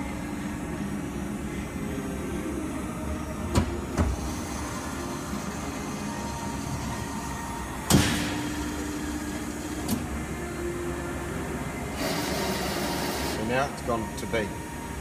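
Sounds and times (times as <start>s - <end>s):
machine hum: 0.0s - 15.0s
machine clunk: 7.8s - 8.5s.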